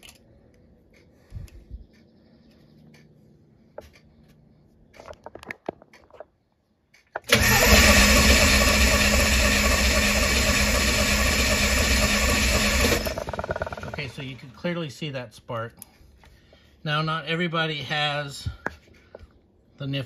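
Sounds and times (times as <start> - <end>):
handling clicks and knocks: 4.9 - 6.4
engine cranking on starter: 7.2 - 14.4.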